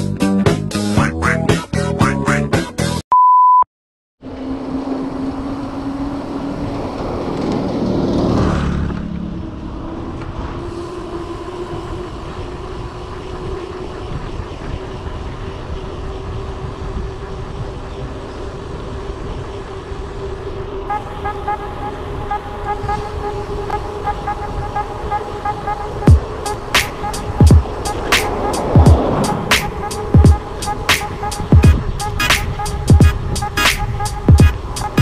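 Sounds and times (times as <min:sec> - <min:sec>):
loud steady beep: 0:03.1 - 0:03.6
motor vehicle passing: 0:04.2 - 0:35.0
wind and road noise: 0:04.2 - 0:35.0
upbeat intro music: 0:26.1 - 0:35.0.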